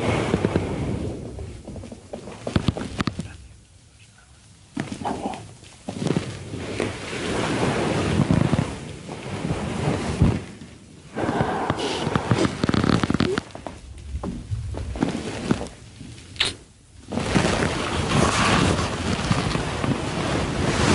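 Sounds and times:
bedcovers rustling: 4.7s - 10.7s, 12.0s - 16.2s, 17.1s - 20.9s.

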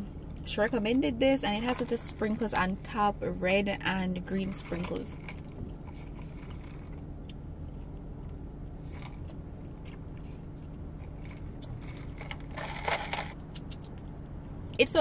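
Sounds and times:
car cabin hum: 0.0s - 15.0s
faint clicks and rustles: 4.3s - 14.2s.

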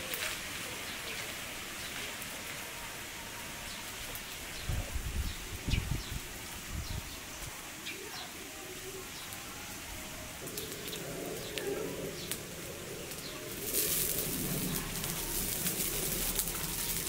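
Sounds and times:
wood fire crackling and popping: 0.0s - 2.7s, 10.3s - 17.0s
boiling water and steam hissing: 0.0s - 17.0s
dove cooing: 10.5s - 17.0s.

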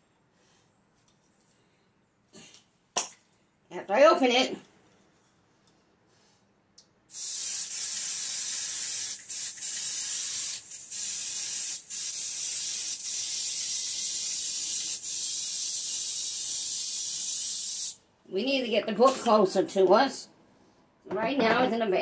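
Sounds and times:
aerosol spray hissing: 7.1s - 18.0s.

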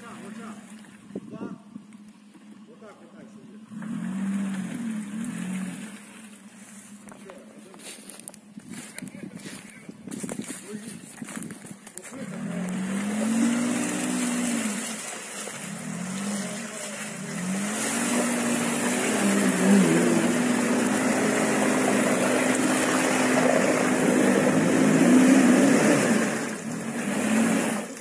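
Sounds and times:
wheels ploughing through mud: 0.0s - 1.2s, 1.9s - 28.0s
suv engine revving: 1.8s - 7.2s, 12.0s - 28.0s.

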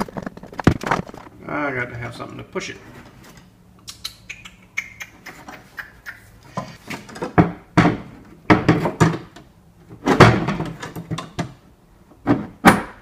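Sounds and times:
knocks and clanks in plastic tank: 7.2s - 9.4s, 10.0s - 11.6s.

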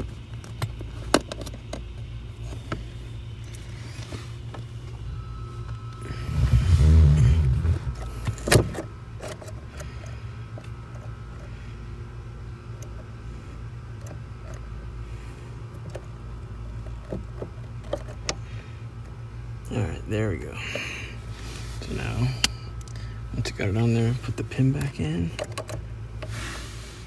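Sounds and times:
steady low hum: 0.0s - 27.0s
low rumbling: 2.2s - 24.5s
clicks and rubbing of parts: 7.4s - 11.5s, 24.3s - 26.3s.

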